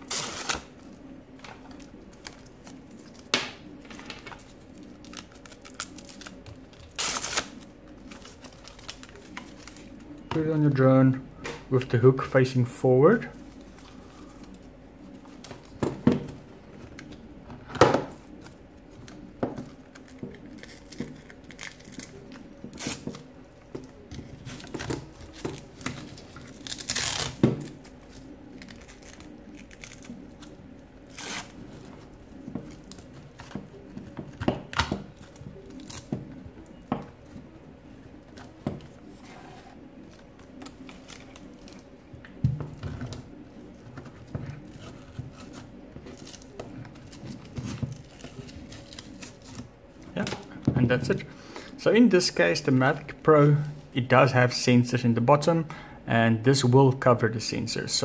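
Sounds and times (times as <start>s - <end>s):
velcro straps ripping: 26.5s - 27.4s, 31.1s - 31.6s.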